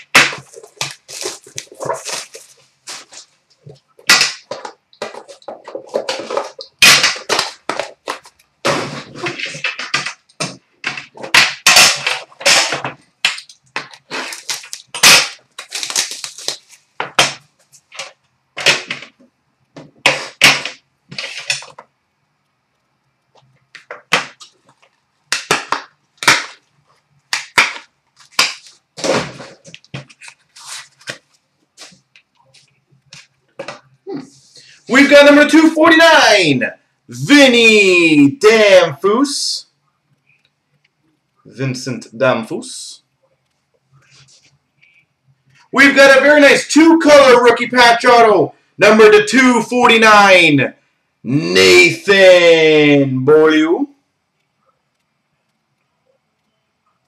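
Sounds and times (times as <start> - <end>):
plastic wrapping crinkling and tearing: 0.0 - 3.6, 13.3 - 17.0, 27.3 - 33.3.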